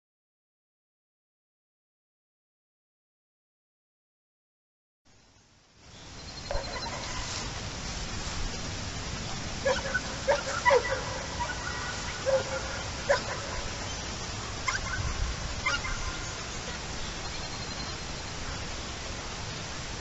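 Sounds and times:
steady background hiss: 0:05.1 - 0:20.0
animal honking cries: 0:09.6 - 0:13.8, 0:14.7 - 0:16.4.

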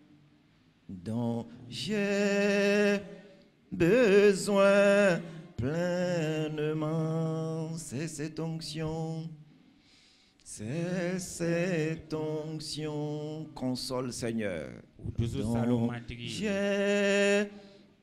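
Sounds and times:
man singing slow worship song: 0:00.8 - 0:18.0.

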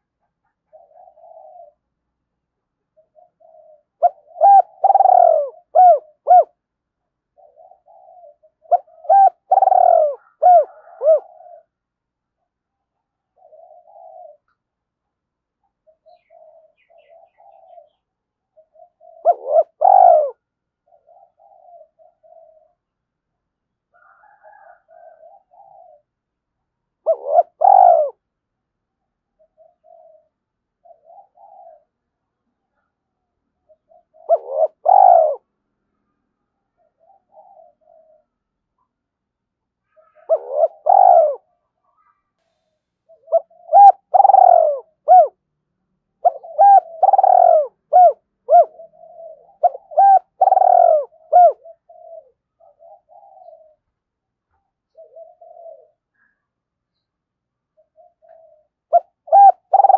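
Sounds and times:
dove cooing: 0:00.0 - 0:02.1, 0:02.8 - 0:06.7, 0:07.3 - 0:14.6, 0:15.7 - 0:23.1, 0:23.9 - 0:26.3, 0:27.0 - 0:28.2, 0:29.3 - 0:32.9, 0:33.6 - 0:35.5, 0:36.7 - 0:38.9, 0:39.8 - 0:45.4, 0:46.2 - 0:56.5, 0:57.7 - 0:59.9.

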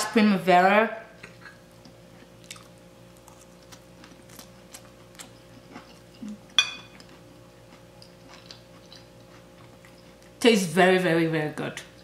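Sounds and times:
ringing fork clink: 0:06.6 - 0:06.9.

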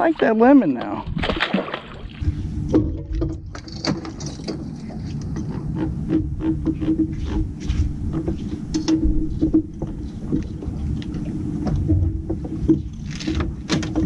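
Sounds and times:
boat motor hum: 0:00.0 - 0:14.0
fishing tackle clicks and knocks: 0:02.7 - 0:07.5.

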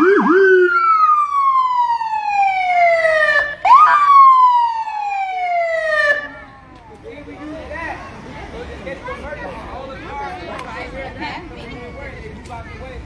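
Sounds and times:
fire engine siren: 0:00.0 - 0:06.6.

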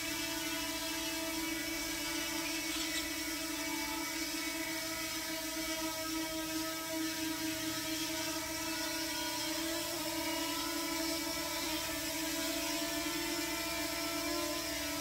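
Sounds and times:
drone buzzing whine: 0:00.0 - 0:15.0.

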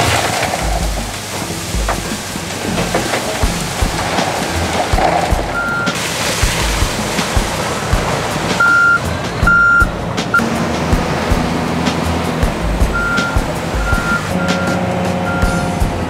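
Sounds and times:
gravel pouring: 0:00.0 - 0:09.2
diesel engine running: 0:00.0 - 0:16.0
reversing alarm beeps: 0:05.6 - 0:06.0, 0:08.6 - 0:09.9, 0:13.0 - 0:15.7.

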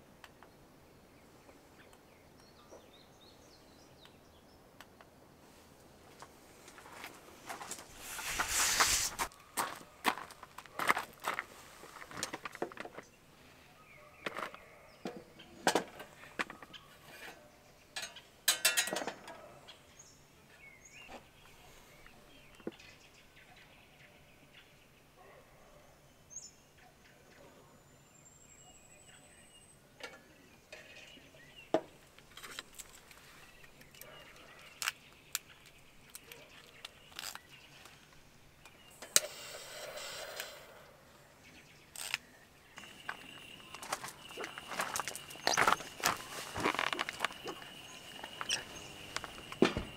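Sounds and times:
brief rustles: 0:07.5 - 0:09.3.

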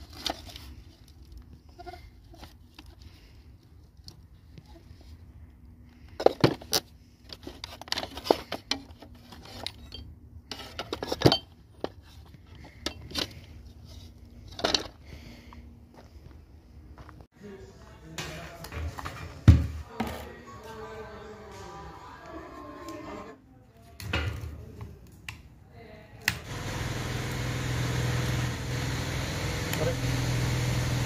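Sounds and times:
scrap metal clinking and clattering: 0:06.2 - 0:15.0.

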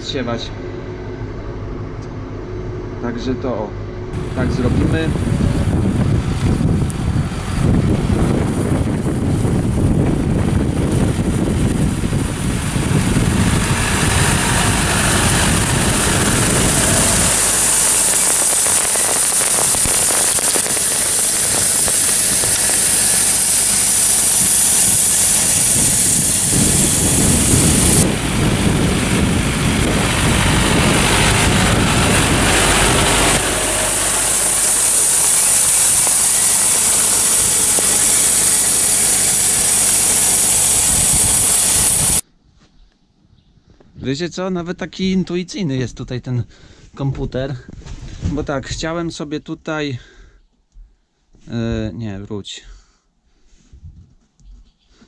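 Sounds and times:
tractor engine rumbling: 0:04.2 - 0:42.2
high hiss: 0:10.9 - 0:42.2.

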